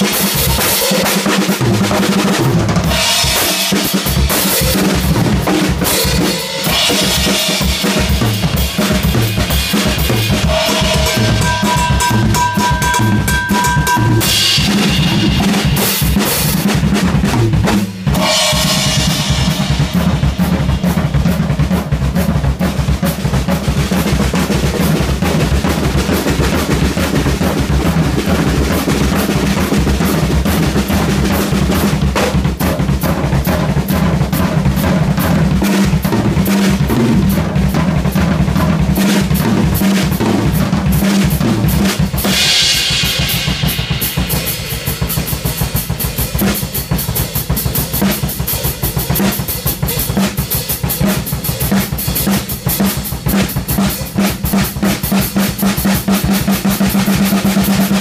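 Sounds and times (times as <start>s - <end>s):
drum kit playing fast fills: 0.0s - 58.0s
cymbal crash: 10.3s - 16.6s, 18.1s - 21.2s, 42.2s - 46.0s.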